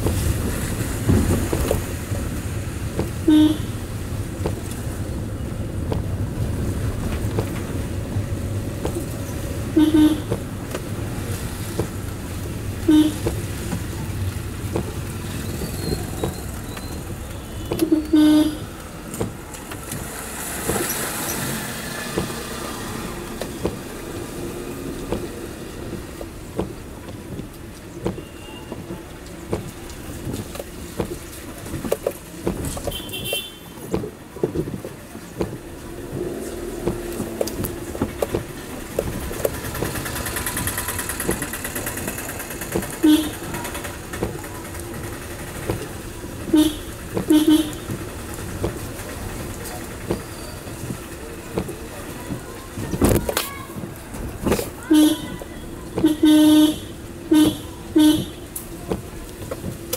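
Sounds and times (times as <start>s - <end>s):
car road and engine noise: 0.0s - 59.9s
rain ticks: 0.0s - 59.9s
vehicle horns beeping: 3.1s - 4.0s, 9.6s - 10.4s, 12.8s - 13.6s, 15.3s - 18.8s, 28.0s - 28.9s, 32.8s - 34.0s, 40.6s - 43.9s, 46.5s - 48.1s, 54.6s - 58.5s.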